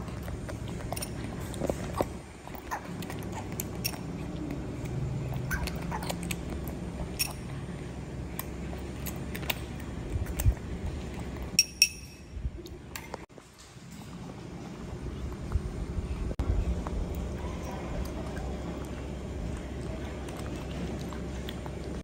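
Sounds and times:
baby monkey chewing: 0.0 - 12.0
metal spoon clinking on ceramic bowl: 11.6 - 12.3.

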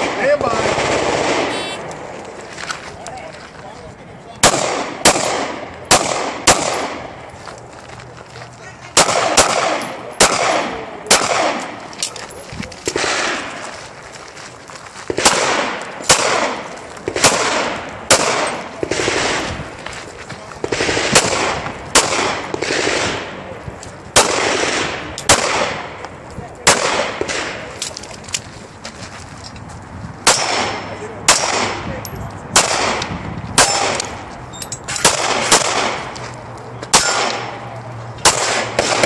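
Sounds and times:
pistol shots with echo: 4.4 - 7.2, 8.9 - 11.9, 12.9 - 13.7, 15.1 - 19.5, 20.6 - 23.4, 24.1 - 26.0, 26.6 - 27.8, 30.2 - 31.9, 32.5 - 34.2, 34.9 - 36.2, 36.9 - 39.0.

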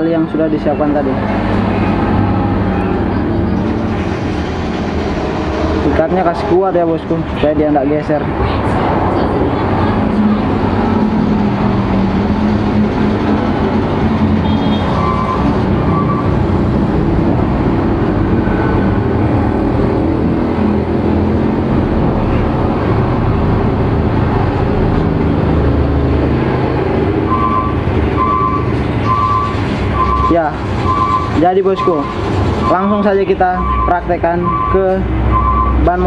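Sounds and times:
reversing alarm beeping: 14.4 - 16.4, 27.2 - 36.0.

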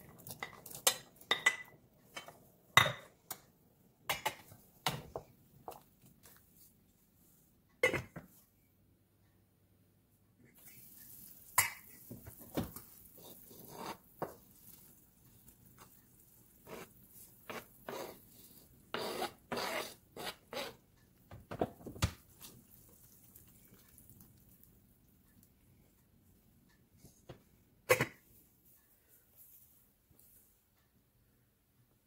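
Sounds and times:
faint steady hiss: 0.0 - 19.3, 21.9 - 32.0.

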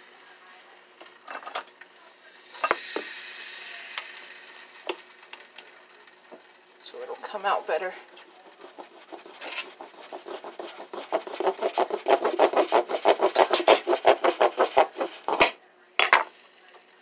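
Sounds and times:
knife sawing plastic: 8.1 - 15.6.

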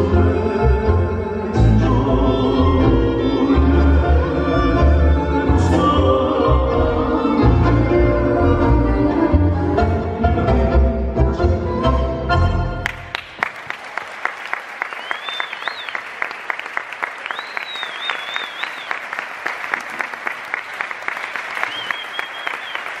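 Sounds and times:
tango music: 0.0 - 13.4
audience clapping: 12.8 - 23.0.

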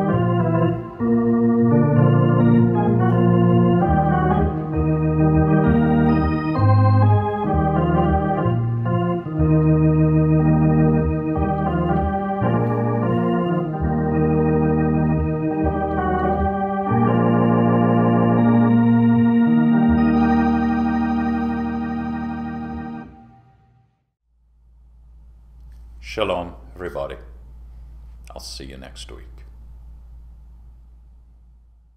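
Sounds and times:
electronic organ chords: 0.0 - 23.9.

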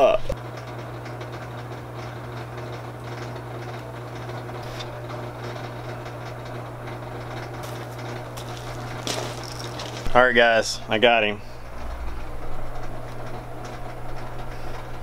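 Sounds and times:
low hum: 4.6 - 15.0.

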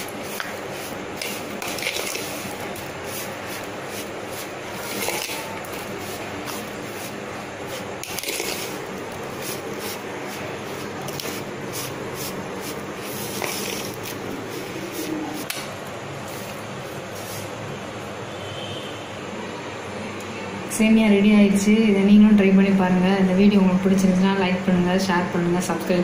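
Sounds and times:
hand mixing food on plastic plate: 0.0 - 15.6.

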